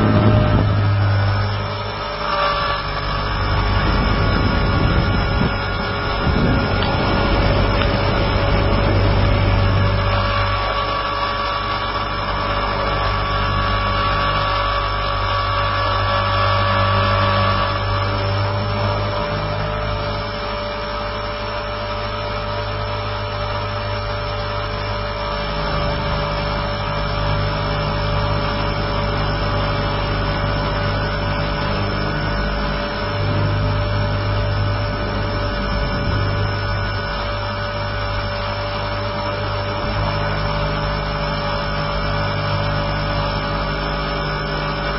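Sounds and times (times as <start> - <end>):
motor and gears whining: 0.0 - 44.9
rotor thrum: 0.0 - 44.9.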